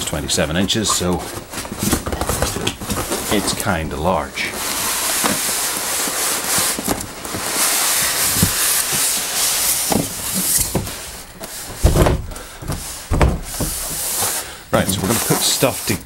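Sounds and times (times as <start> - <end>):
cardboard box scraping: 0.0 - 16.0
heavy dull thumps: 9.9 - 14.4.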